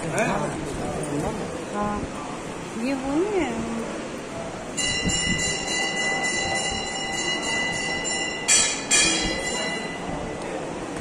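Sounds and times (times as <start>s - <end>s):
temple bell ringing: 4.7s - 10.8s.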